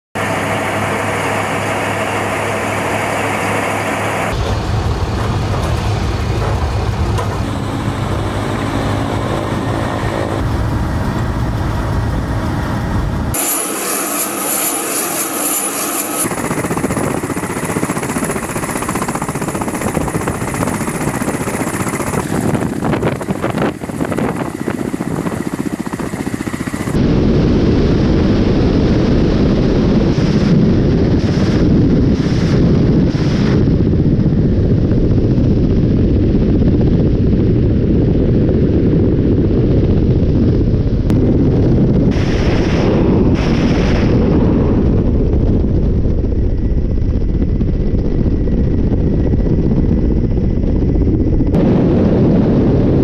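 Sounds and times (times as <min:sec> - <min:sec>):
rotor and wind rush: 0:00.1 - 0:53.0
helicopter turbine whine: 0:00.2 - 0:53.0.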